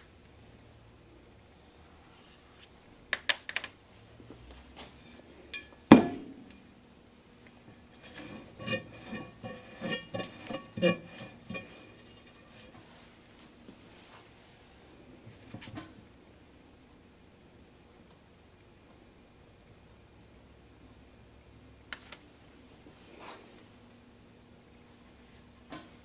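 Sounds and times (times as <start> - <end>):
metal vessel clinking and clanking: 8.0 - 12.7.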